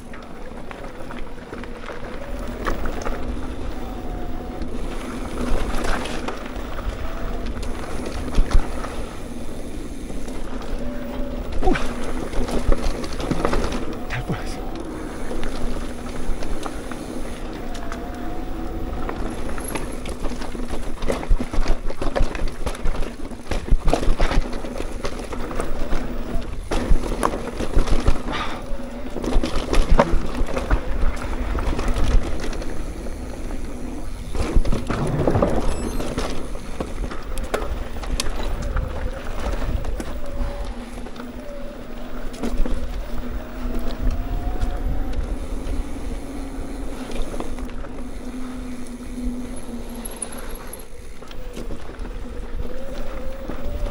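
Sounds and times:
bike tyres on dirt trail: 0:00.0 - 0:53.9
bike knocks and rattles: 0:26.4 - 0:28.6.

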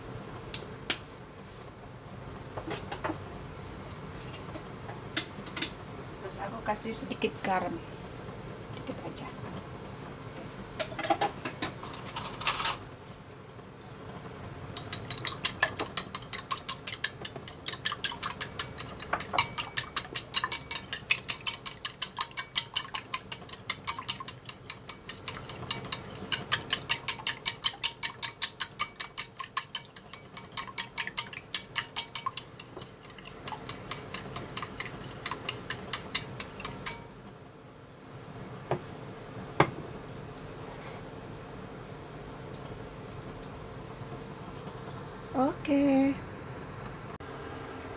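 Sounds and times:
chopsticks clicking against ceramic bowl: 0:14.8 - 0:37.1.

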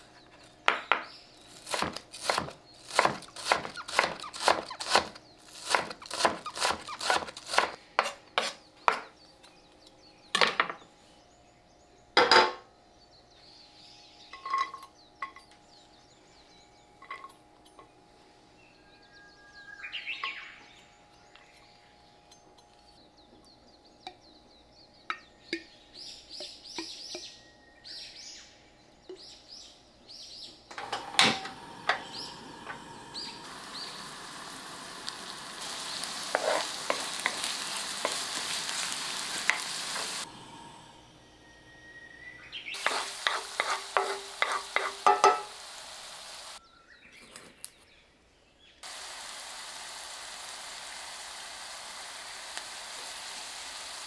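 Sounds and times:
knife chopping on wooden board: 0:01.7 - 0:09.1
clinks and scrapes in frying pan: 0:36.3 - 0:38.2, 0:42.8 - 0:45.6.

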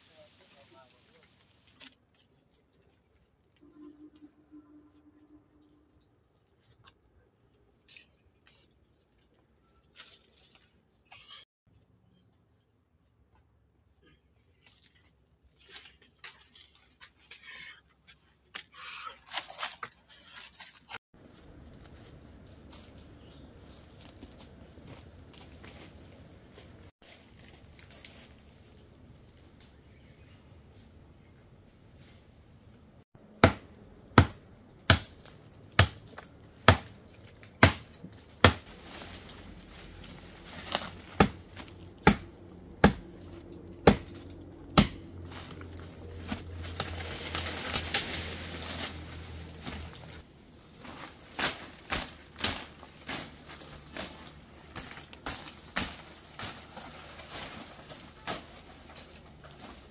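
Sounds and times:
rustling: 0:45.2 - 0:59.9.

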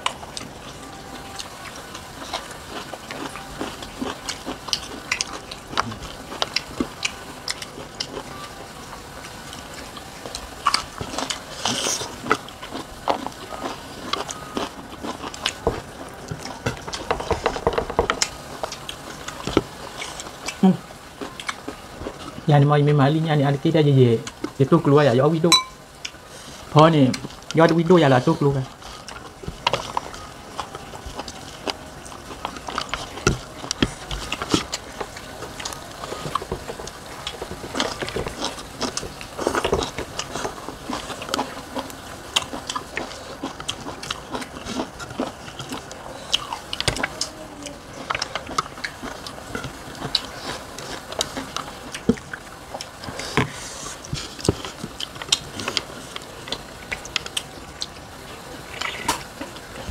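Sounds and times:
chewing and mouth smacks: 0:01.4 - 0:08.4, 0:09.2 - 0:17.1, 0:28.8 - 0:58.1, 0:58.7 - 0:59.9.

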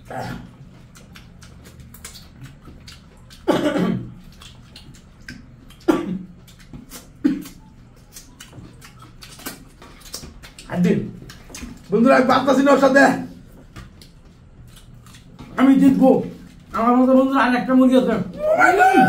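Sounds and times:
people grunting or coughing: 0:00.0 - 0:00.5, 0:03.4 - 0:04.1, 0:05.8 - 0:06.3
lip-smacking and chewing: 0:00.0 - 0:12.1, 0:13.3 - 0:16.7.

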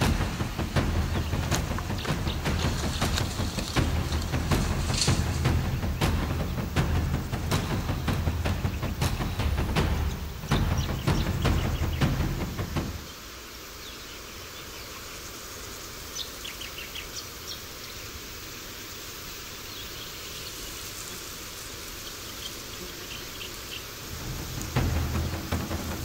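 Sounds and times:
low rumble: 0:00.0 - 0:13.0, 0:24.1 - 0:26.0
forest ambience hiss: 0:00.0 - 0:26.0.

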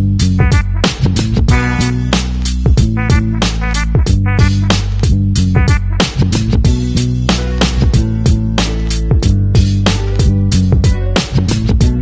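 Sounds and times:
sustained bass notes: 0:00.0 - 0:12.0
drum beat: 0:00.2 - 0:08.5.

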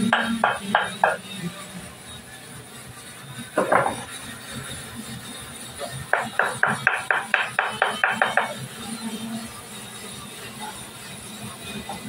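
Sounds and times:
hammer blows on wood: 0:06.1 - 0:08.6.

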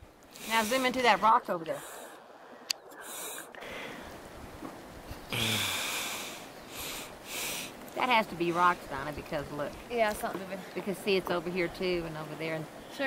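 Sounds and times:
breathy breaths close to microphone: 0:00.3 - 0:04.1.

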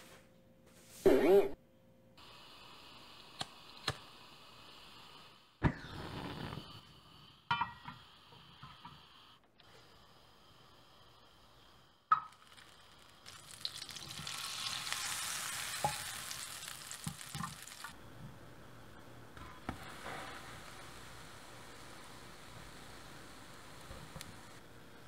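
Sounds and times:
butter sizzling in a frying pan: 0:10.4 - 0:18.0, 0:19.5 - 0:24.6.

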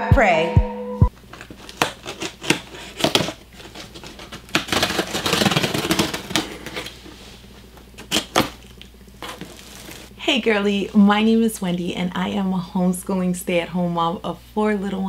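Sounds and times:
package being opened by hand: 0:01.2 - 0:07.0, 0:07.8 - 0:10.1
rustling and scraping: 0:01.2 - 0:08.5, 0:09.2 - 0:10.1.

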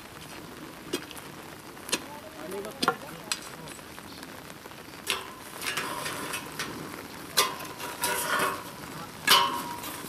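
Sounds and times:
gritty scrape in gravelly soil: 0:05.1 - 0:10.0
metal tool striking soil: 0:07.4 - 0:08.7, 0:09.3 - 0:10.0.

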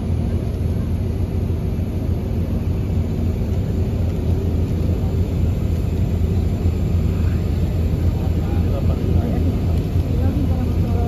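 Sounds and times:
crane engine rumbling: 0:00.0 - 0:11.0.

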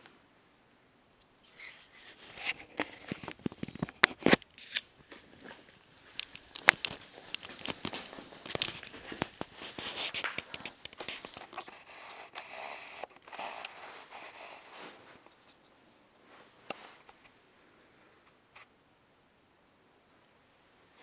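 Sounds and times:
handling rustling and scraping: 0:01.4 - 0:17.4.

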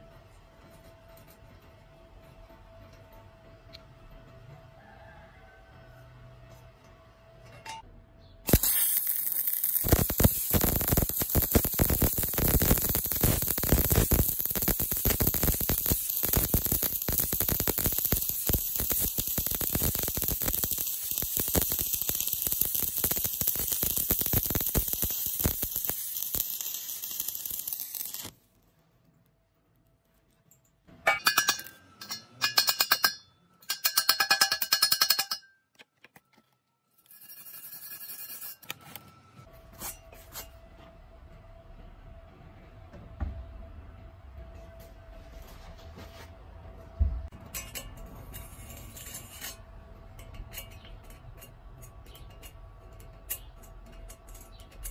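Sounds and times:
welding arc crackling: 0:08.5 - 0:28.5
metal scraping and ringing: 0:31.0 - 0:35.5, 0:37.0 - 0:39.0.

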